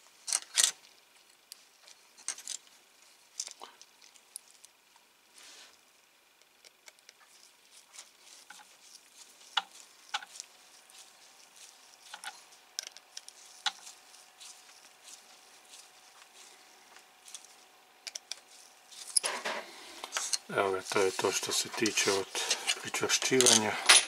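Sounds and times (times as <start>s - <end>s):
screwdriver clicking and scraping: 6.6s - 15.8s, 17.2s - 19.4s, 20.0s - 23.7s.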